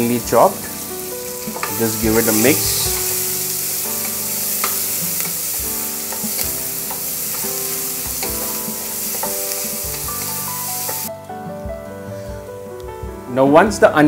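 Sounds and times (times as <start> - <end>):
onion sizzling in oil: 0.0 - 11.1
spatula scraping and knocking pan: 0.7 - 11.1.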